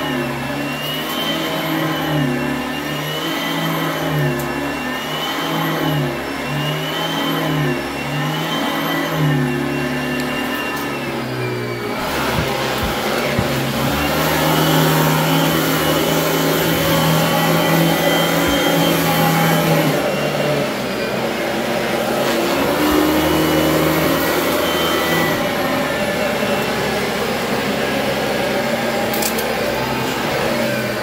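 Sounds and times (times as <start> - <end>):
vacuum cleaner running on carpet: 0.0 - 31.0.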